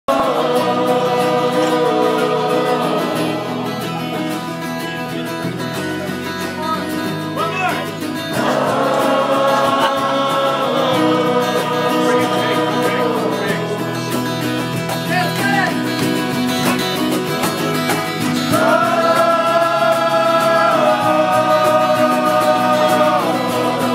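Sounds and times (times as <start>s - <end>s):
voices singing in harmony: 0.1s - 5.4s, 8.0s - 14.8s, 17.5s - 23.9s
acoustic guitar: 0.1s - 23.9s.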